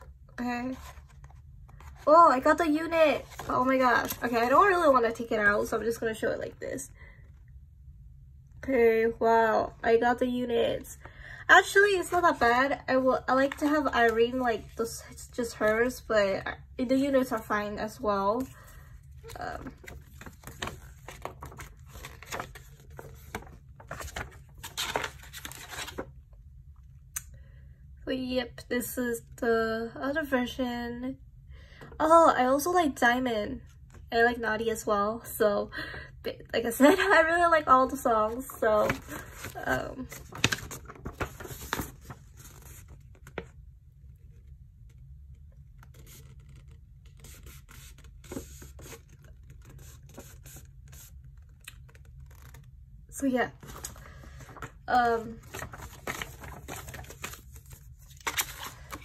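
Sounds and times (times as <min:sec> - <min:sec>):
paper pages flipping: 0:00.7 - 0:02.1, 0:03.2 - 0:04.5, 0:18.4 - 0:26.1, 0:38.3 - 0:43.6, 0:45.8 - 0:52.7, 0:53.6 - 0:59.0.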